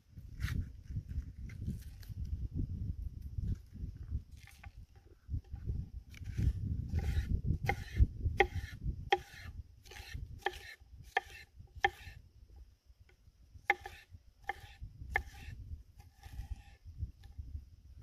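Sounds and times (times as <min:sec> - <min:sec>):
knife slicing pepper: 0:06.2 - 0:12.2, 0:13.7 - 0:16.8
knife knocking on wooden board: 0:13.7 - 0:15.4.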